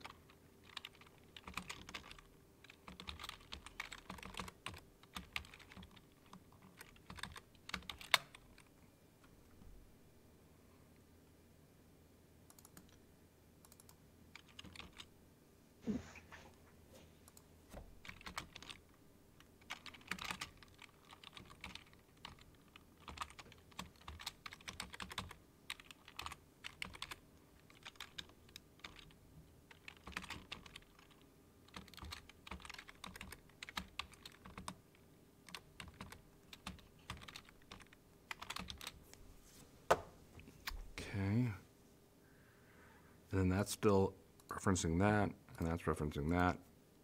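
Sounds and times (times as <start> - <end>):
keyboard typing clicks: 0.0 - 8.7, 12.5 - 13.0, 13.6 - 15.1, 17.3 - 18.8, 19.6 - 34.8, 35.5 - 39.0.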